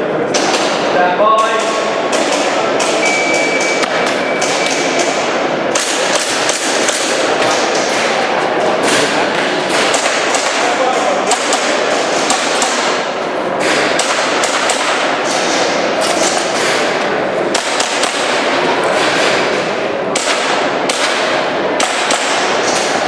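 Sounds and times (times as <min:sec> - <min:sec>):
background noise rush: 0:00.0 - 0:23.0
airsoft pistol shots: 0:09.7 - 0:15.6, 0:17.5 - 0:19.3, 0:20.1 - 0:23.0.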